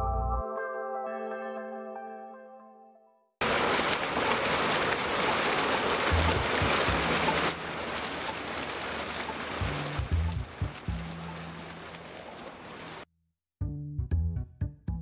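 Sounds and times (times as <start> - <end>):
fountain jets splashing into pool: 3.4 - 13.1.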